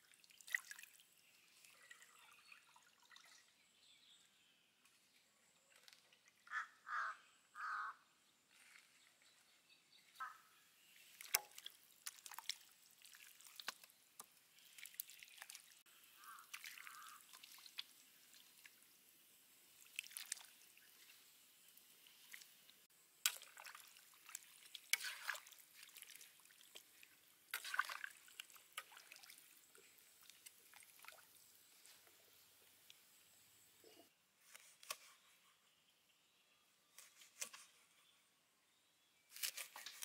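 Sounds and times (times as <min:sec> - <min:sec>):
small splashes and drips: 0:00.0 - 0:03.9, 0:04.8 - 0:06.6, 0:10.2 - 0:35.0, 0:39.3 - 0:40.0.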